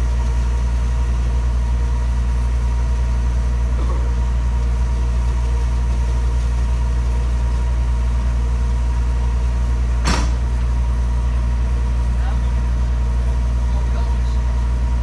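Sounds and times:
engine idling: 0.0s - 15.0s
sharp knock: 10.0s - 10.4s.

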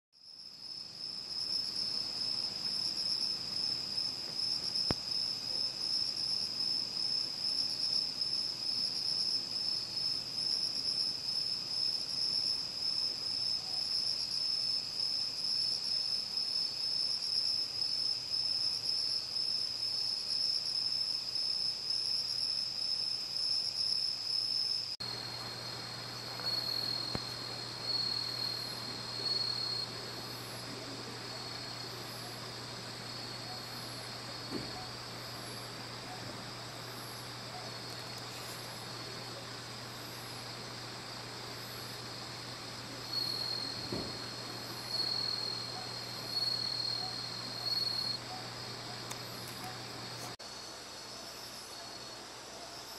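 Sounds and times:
crickets trilling: 0.2s - 52.9s.

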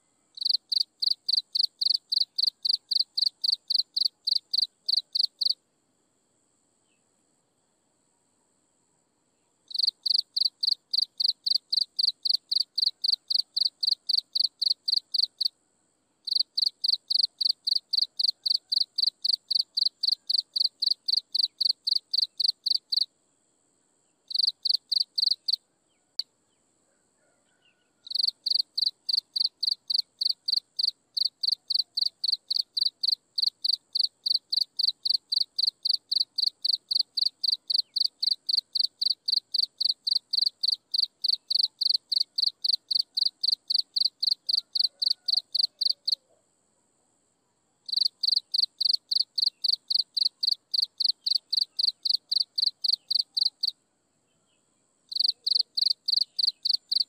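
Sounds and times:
insect chirping: 0.0s - 57.0s.

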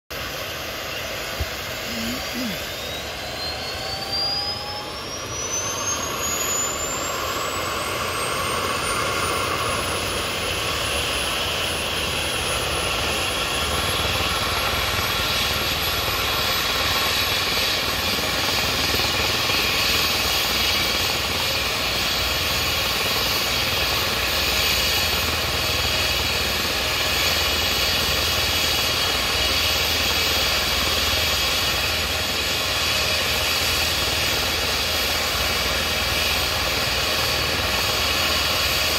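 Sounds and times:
helicopter engine and rotor rush: 0.1s - 38.9s
helicopter turbine whine: 0.1s - 38.9s.

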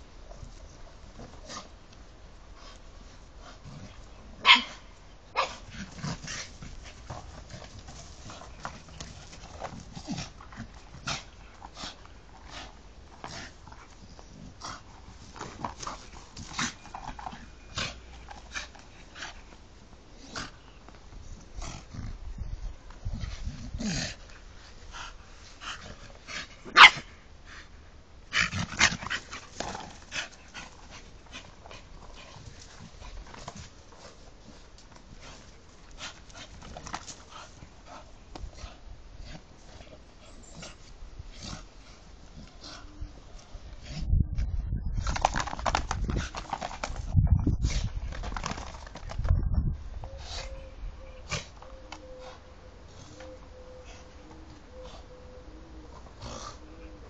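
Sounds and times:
dog barking: 4.4s - 4.8s, 26.8s - 27.1s
dogs scuffling: 5.6s - 19.6s, 45.0s - 49.3s.

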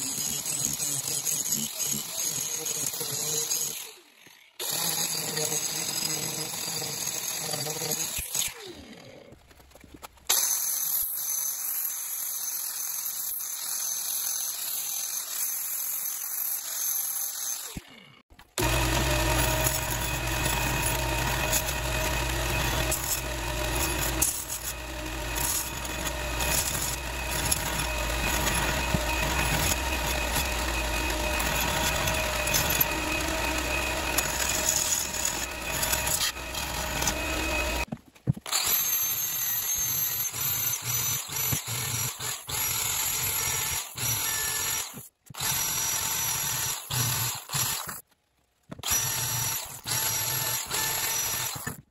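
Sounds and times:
electric drill sanding steel: 0.0s - 8.5s, 18.6s - 37.9s, 48.8s - 51.8s
belt grinder grinding steel: 0.0s - 8.8s, 18.5s - 37.9s, 38.5s - 48.0s, 48.8s - 51.8s.

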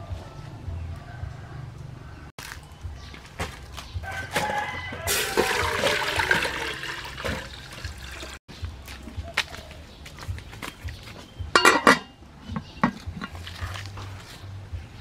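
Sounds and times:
liquid splashing into metal pot: 5.1s - 8.4s.

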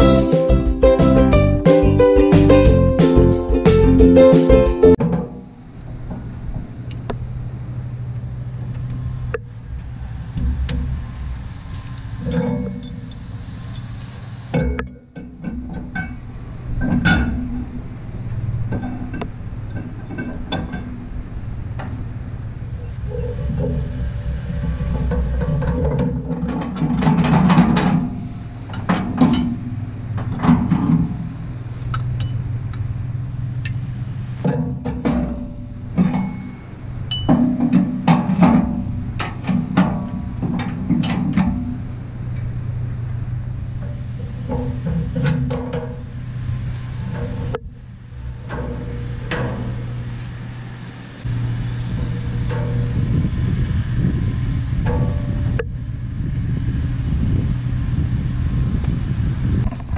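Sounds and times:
tractor engine idling: 0.0s - 59.9s
steady low hum: 4.9s - 59.9s
metal clanks and clinks: 12.2s - 21.2s, 22.8s - 32.7s, 33.6s - 43.1s, 43.8s - 50.2s, 51.2s - 53.1s
sharp metallic clinks: 31.9s - 32.7s.

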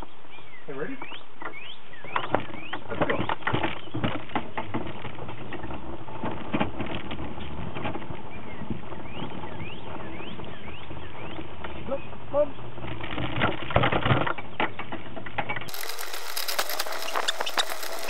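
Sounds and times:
bicycle clicking and rattling: 15.7s - 18.0s.

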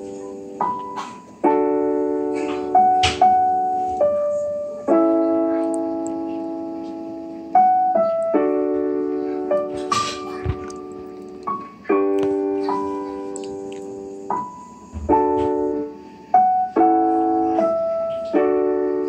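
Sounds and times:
slow keyboard melody: 0.0s - 19.0s.

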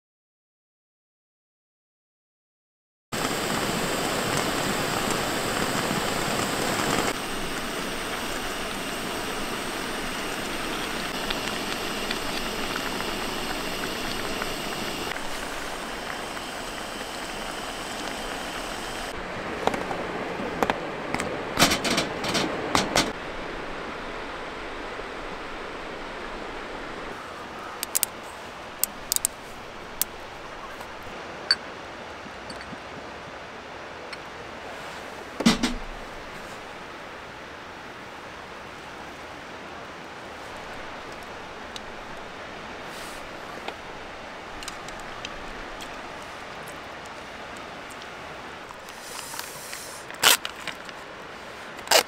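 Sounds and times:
gas stove hissing: 3.2s - 19.2s, 27.8s - 31.1s, 40.4s - 46.4s, 48.7s - 50.3s
metal clicks of cooking gear: 27.8s - 28.1s, 28.8s - 29.3s
bottle being handled: 32.4s - 32.8s.

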